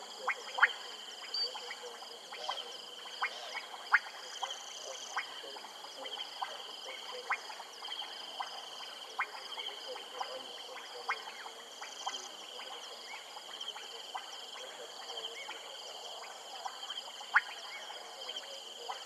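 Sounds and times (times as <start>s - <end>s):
frogs clicking calls: 0.0s - 19.0s.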